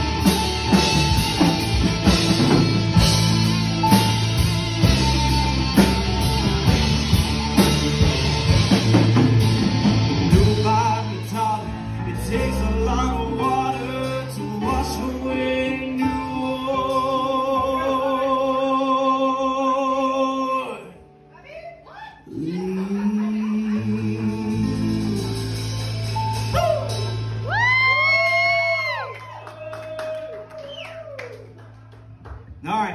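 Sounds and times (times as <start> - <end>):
live rock band playing: 0.0 - 18.4, 23.6 - 29.3.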